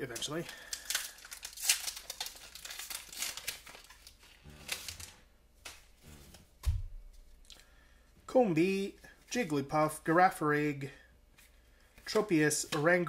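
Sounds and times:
trading cards clicking and rustling: 0:00.0 - 0:05.9, 0:12.0 - 0:13.0.

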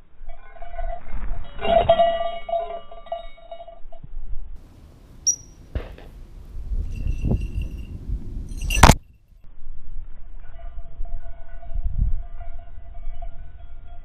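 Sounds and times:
steady ringing tones: 0:00.2 - 0:04.1.

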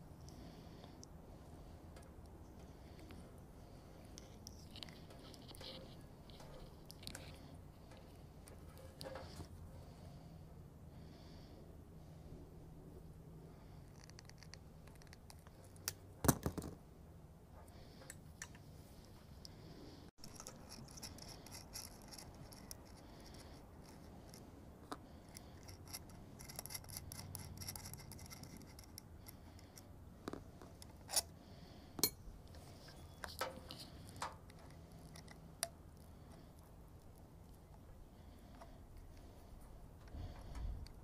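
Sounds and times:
scraping and handling of wires: 0:01.9 - 0:10.0, 0:20.2 - 0:31.4, 0:32.0 - 0:41.0.

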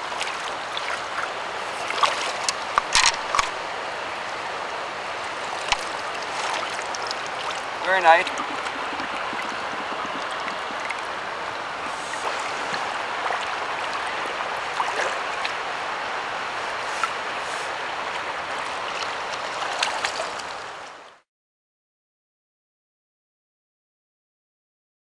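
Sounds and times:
small water splashes: 0:00.0 - 0:03.6, 0:05.0 - 0:21.0
river water rushing: 0:00.0 - 0:21.1.

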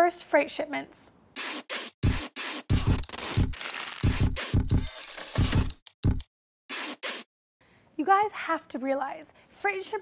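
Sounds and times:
packing tape ripping: 0:02.5 - 0:05.8.

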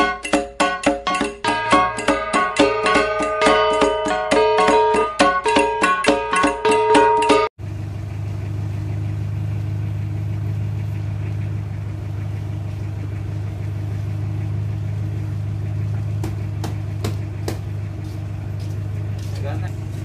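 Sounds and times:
engine droning: 0:07.6 - 0:20.0.

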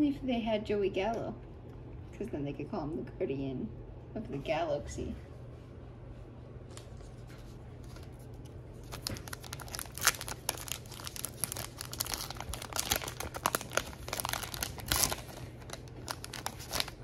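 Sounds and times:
foil wrapper tearing and crinkling: 0:08.8 - 0:17.0.

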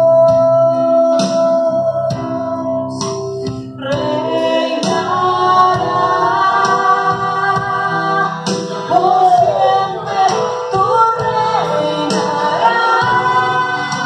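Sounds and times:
acoustic guitar: 0:00.0 - 0:14.0
women singing: 0:03.8 - 0:14.0.

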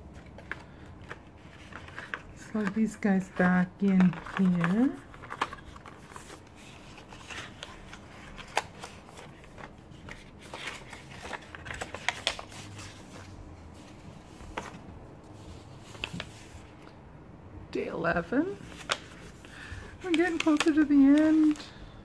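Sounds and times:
paper sliding and rustling: 0:03.4 - 0:16.7.

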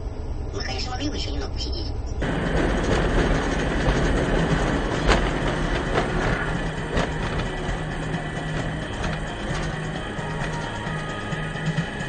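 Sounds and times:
low hum: 0:00.0 - 0:12.0
vehicle road and engine noise: 0:02.1 - 0:12.0
short knocks and rattles: 0:02.2 - 0:10.8.

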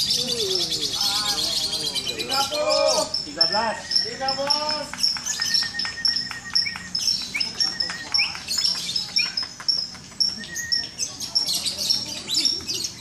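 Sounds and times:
lovebirds chirping: 0:00.0 - 0:13.0.

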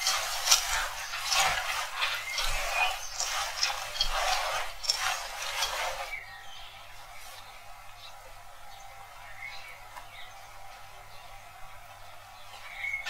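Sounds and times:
hand mixing wet grated potato: 0:00.0 - 0:06.2.

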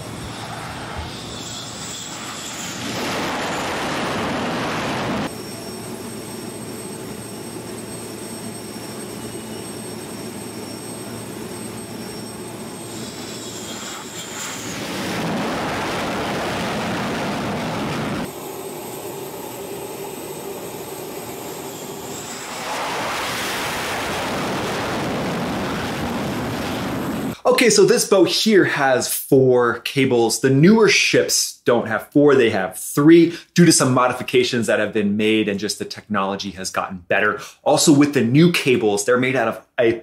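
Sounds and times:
jet engine whine with whistling: 0:00.0 - 0:27.4
jet landing roar: 0:00.0 - 0:29.1.

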